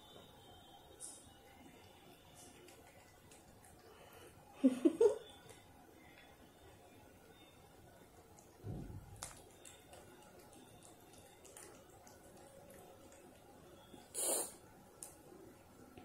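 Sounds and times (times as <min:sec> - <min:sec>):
cat licking: 0:02.4 - 0:04.2, 0:09.2 - 0:15.2
low thump: 0:08.6 - 0:09.1
short breathy puff: 0:14.2 - 0:14.6.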